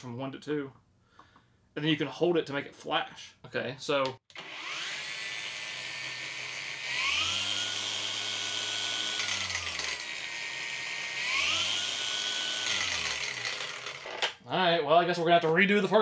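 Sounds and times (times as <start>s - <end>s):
angle grinder motor whine: 4.3s - 14.4s.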